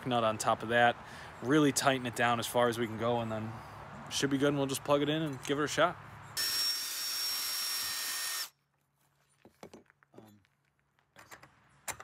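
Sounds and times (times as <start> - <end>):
power drill whining: 6.4 - 8.5.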